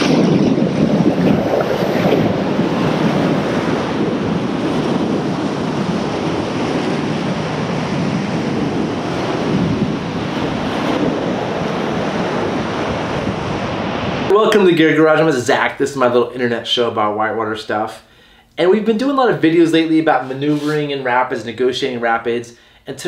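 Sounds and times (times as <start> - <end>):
wind on microphone: 0.0 - 15.2.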